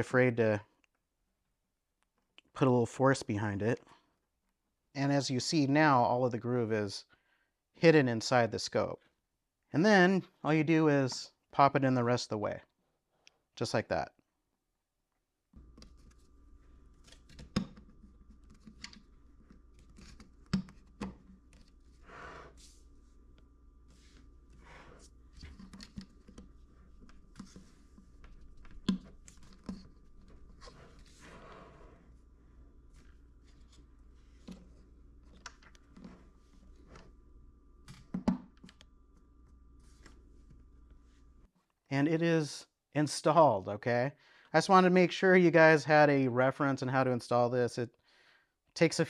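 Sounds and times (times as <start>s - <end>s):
faint steady hum: 15.6s - 41.5s.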